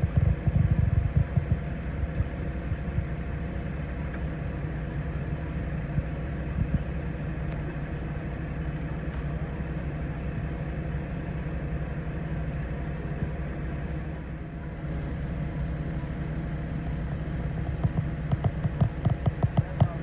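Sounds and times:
machinery engine idling: 0:00.0 - 0:20.0.

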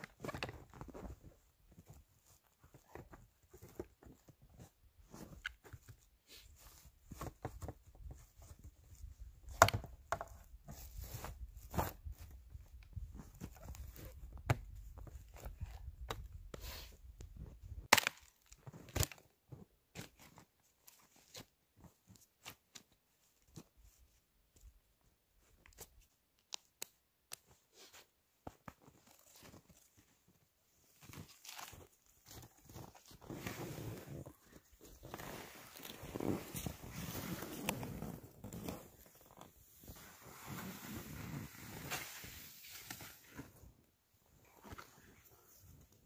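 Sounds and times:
snow crunching: 0:33.3 - 0:39.0.

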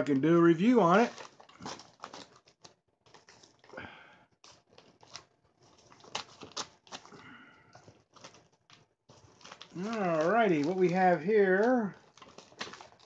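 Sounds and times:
plastic crinkling: 0:00.0 - 0:13.0
scissors snipping plastic: 0:09.2 - 0:13.0.

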